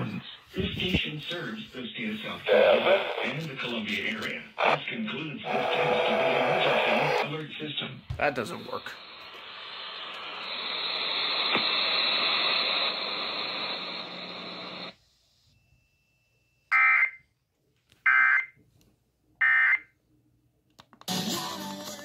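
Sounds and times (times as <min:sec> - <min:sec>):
radio static hiss: 0:00.0 - 0:15.0
harsh data bursts: 0:05.5 - 0:07.4.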